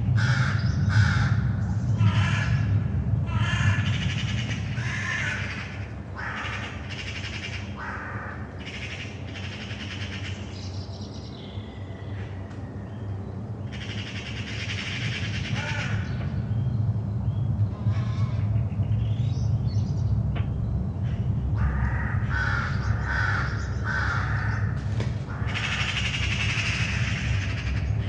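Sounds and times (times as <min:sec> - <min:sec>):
low aircraft engine rumble: 0:00.0 - 0:28.0
crows cawing: 0:00.2 - 0:10.5, 0:13.7 - 0:16.4, 0:21.0 - 0:28.0.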